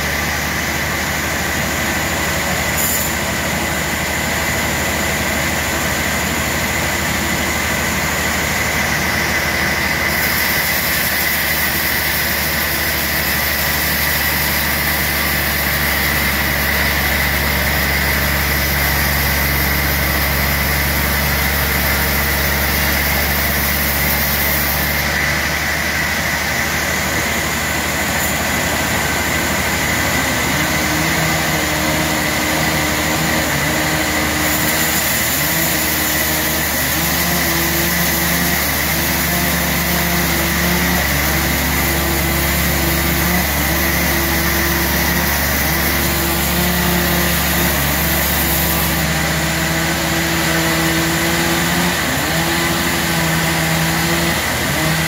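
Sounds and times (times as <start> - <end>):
sawmill machine hum: 0.0 - 55.0
steady high tone: 16.5 - 33.7.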